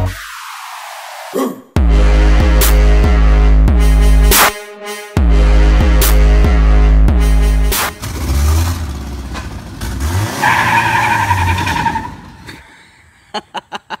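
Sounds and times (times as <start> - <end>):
truck engine revving: 5.4 - 12.6.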